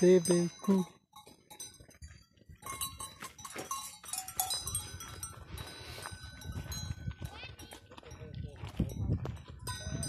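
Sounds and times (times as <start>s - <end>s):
cowbells clanking: 0.0s - 10.0s.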